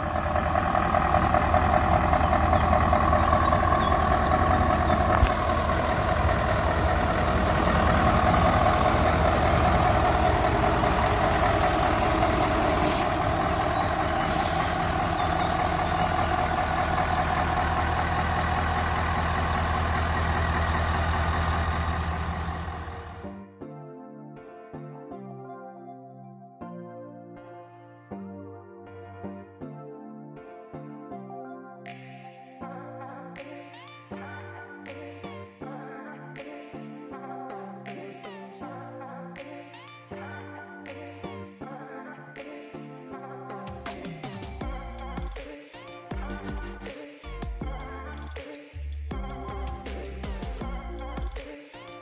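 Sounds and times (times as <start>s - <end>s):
diesel truck engine idling: 0.0s - 23.2s
short air hisses: 12.8s - 13.2s, 14.3s - 14.9s.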